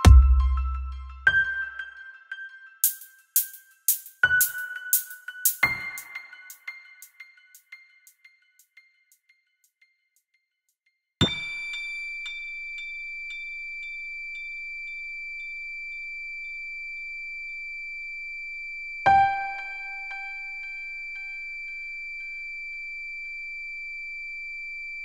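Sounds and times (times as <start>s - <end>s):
echoing bell-like chime: 11.2s - 15.0s.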